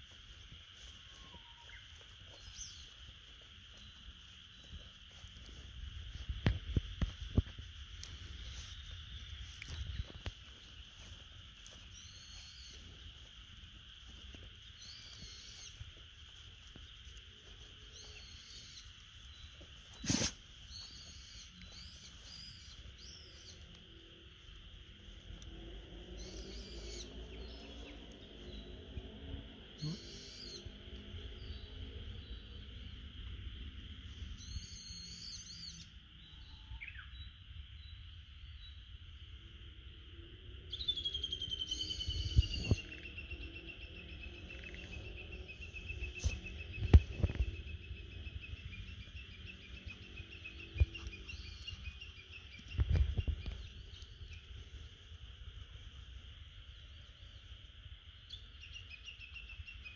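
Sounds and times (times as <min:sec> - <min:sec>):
insects droning: 0:00.0 - 0:59.9
birds chirping: 0:00.6 - 0:33.0, 0:40.7 - 0:59.9
low repeated bird call: 0:25.5 - 0:33.1, 0:40.6 - 0:54.9.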